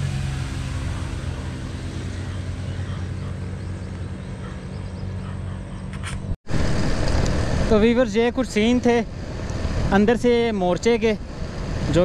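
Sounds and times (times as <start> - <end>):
low engine drone: 0.0 - 12.0
outdoor background hiss: 6.5 - 12.0.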